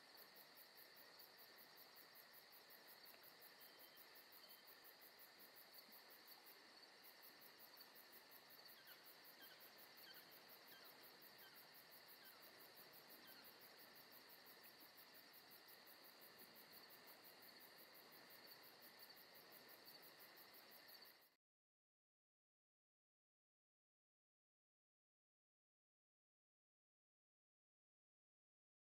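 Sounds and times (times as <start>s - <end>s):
crickets trilling: 0.0s - 21.3s.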